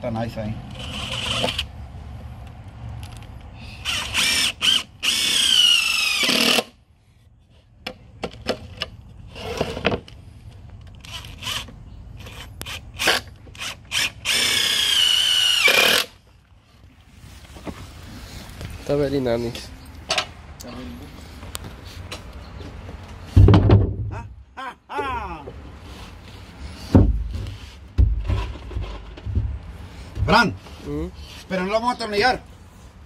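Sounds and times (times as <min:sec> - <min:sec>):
cordless drill driving screws: 0:00.7 - 0:01.7, 0:03.8 - 0:06.7, 0:11.0 - 0:16.2.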